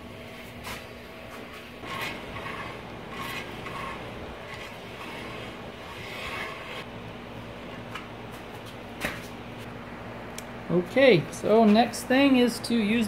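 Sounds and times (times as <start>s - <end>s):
metal scraping metal: 1.8s - 6.9s.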